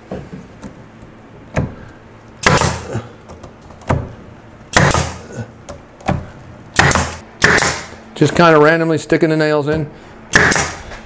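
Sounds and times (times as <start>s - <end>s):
pneumatic nailer shots: 2.4s - 2.9s, 4.7s - 5.2s, 6.0s - 8.0s, 10.3s - 11.0s.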